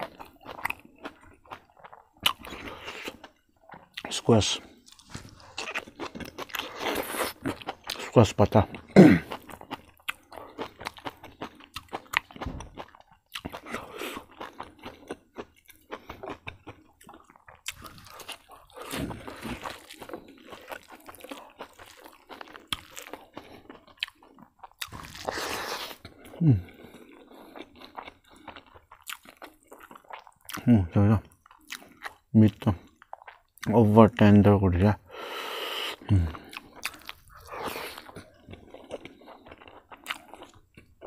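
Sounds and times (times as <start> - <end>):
person chewing and crunching food: 0.0 - 34.4, 35.0 - 41.0.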